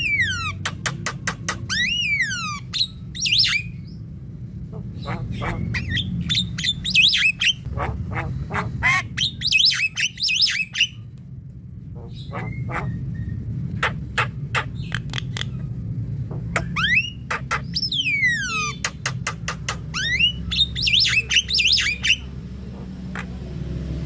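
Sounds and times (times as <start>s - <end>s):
bird singing whistles and squawks: 1.6s - 4.0s, 5.0s - 7.7s, 8.8s - 11.0s, 16.5s - 19.1s, 19.9s - 22.3s.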